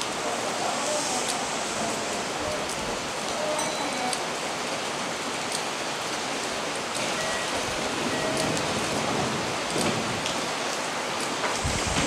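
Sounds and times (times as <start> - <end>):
heavy rain on roof: 0.0 - 12.0.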